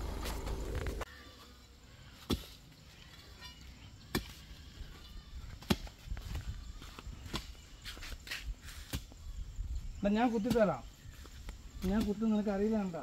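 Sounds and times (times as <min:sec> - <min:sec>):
low rumble: 0:00.0 - 0:01.0.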